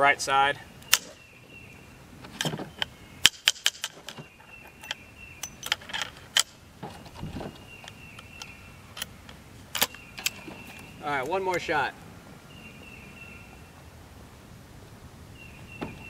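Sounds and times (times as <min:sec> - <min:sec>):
shotgun action metallic clicks: 0:00.8 - 0:01.2, 0:02.4 - 0:06.6, 0:07.6 - 0:11.6.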